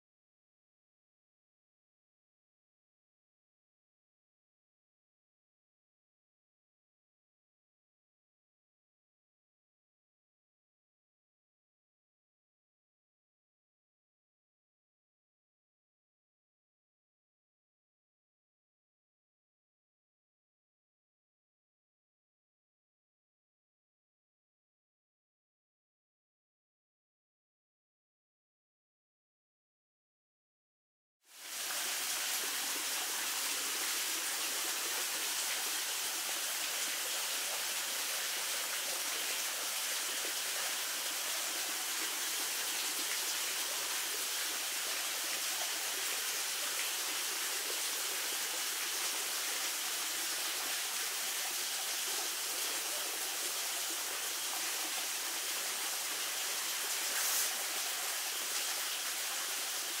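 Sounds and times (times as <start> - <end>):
steady hiss: 31.3 - 60.0.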